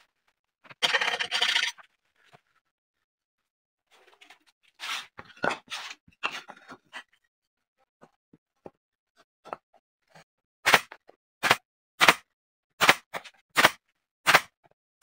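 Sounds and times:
wooden pieces scraping and knocking: 0:00.6 - 0:02.5, 0:03.9 - 0:07.1.

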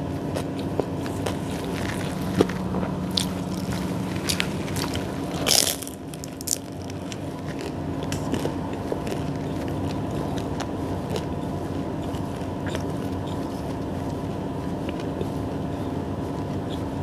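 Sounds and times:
steady low hum: 0:00.0 - 0:17.0
crisp bite into crust: 0:00.3 - 0:11.3
chewing clicks: 0:00.3 - 0:14.2.

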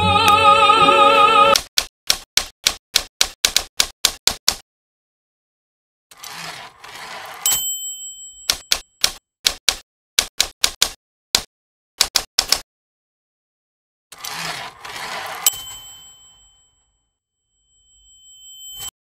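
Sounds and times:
typewriter keystroke clicks: 0:01.6 - 0:04.6, 0:08.5 - 0:12.6
typewriter carriage return slide: 0:06.1 - 0:07.6, 0:14.1 - 0:15.9
typewriter bell ding: 0:07.4 - 0:09.1, 0:15.4 - 0:17.0, 0:17.6 - 0:19.0.

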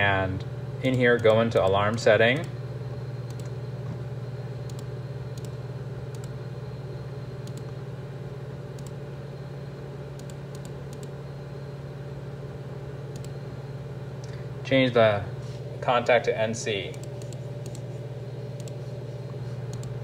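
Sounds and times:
steady low hum: 0:00.0 - 0:20.0
computer mouse clicking: 0:03.3 - 0:03.6, 0:04.6 - 0:06.3, 0:07.4 - 0:07.8, 0:08.8 - 0:09.0, 0:10.2 - 0:11.1, 0:13.1 - 0:13.4, 0:16.9 - 0:17.9, 0:18.6 - 0:18.8, 0:19.7 - 0:20.0.

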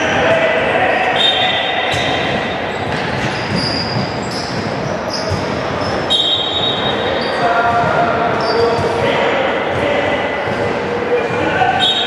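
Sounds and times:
sneakers squeaking on court: 0:01.3 - 0:09.1
basketball bouncing: 0:01.9 - 0:07.0.

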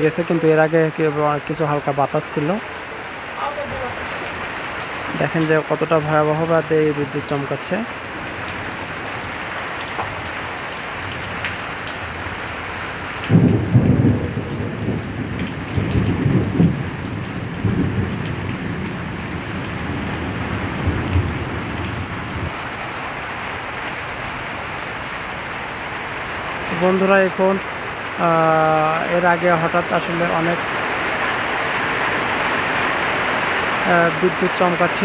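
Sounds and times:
steady rain: 0:00.0 - 0:35.0
thunder rumbling: 0:13.3 - 0:22.6.

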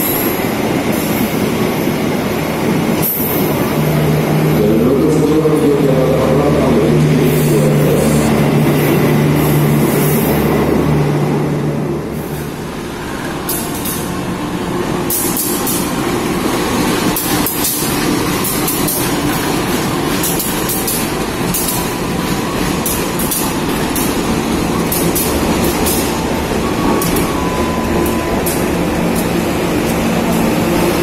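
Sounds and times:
diesel locomotive drone: 0:00.0 - 0:31.0
wheels clacking over rail joints: 0:13.2 - 0:31.0.

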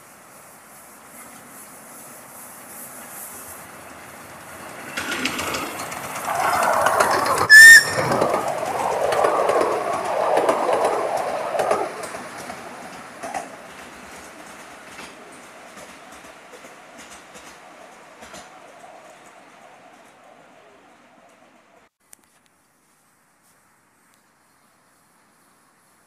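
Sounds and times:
wheels clattering on rails: 0:00.9 - 0:21.8
steam whistle blast: 0:07.5 - 0:08.4.

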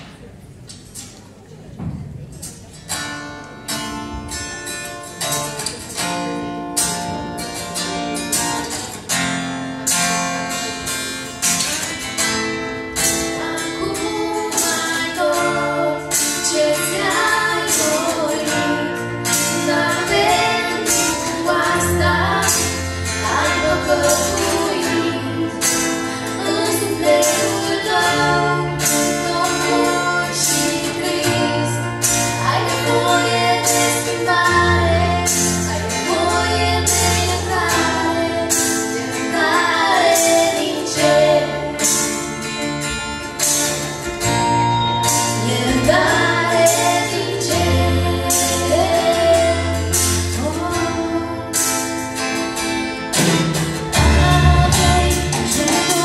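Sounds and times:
strummed guitars: 0:00.0 - 0:56.0
woman singing into a microphone: 0:13.2 - 0:42.2, 0:45.2 - 0:52.0, 0:53.9 - 0:56.0
drum kit beat: 0:53.2 - 0:56.0.

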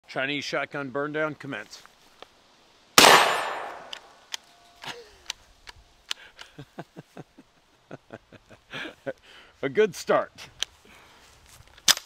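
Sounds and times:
shotgun shot: 0:03.0 - 0:04.0
man laughing: 0:04.8 - 0:05.3, 0:06.4 - 0:09.2.

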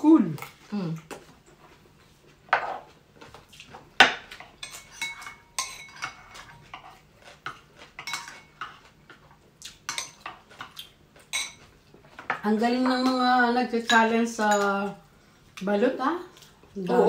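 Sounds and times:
cutlery clinking on ceramic dishes: 0:04.0 - 0:08.8, 0:09.9 - 0:12.4.

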